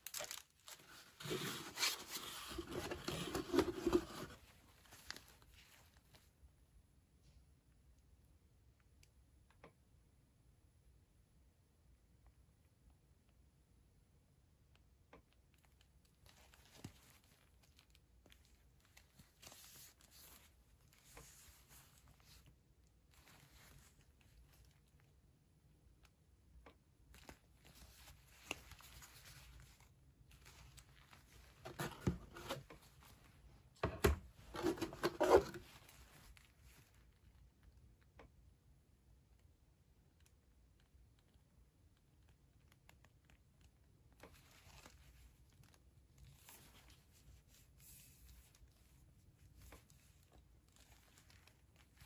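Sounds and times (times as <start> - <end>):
faint handling noise: 0.0 - 6.6, 15.5 - 25.2, 26.0 - 37.9, 42.6 - 52.0.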